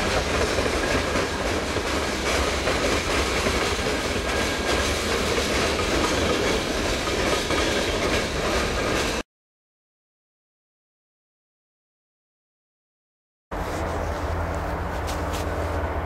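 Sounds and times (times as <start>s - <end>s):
freight train rolling past: 0.0s - 9.2s, 13.6s - 16.0s
wheels clacking over rail joints: 0.0s - 9.2s.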